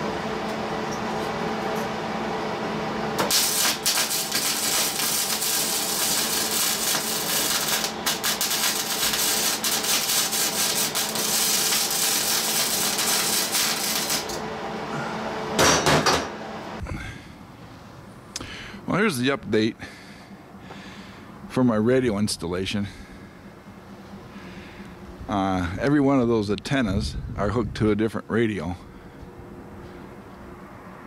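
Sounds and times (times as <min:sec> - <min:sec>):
steady hum: 0:00.0 - 0:31.0
welding arc crackling: 0:03.2 - 0:14.4.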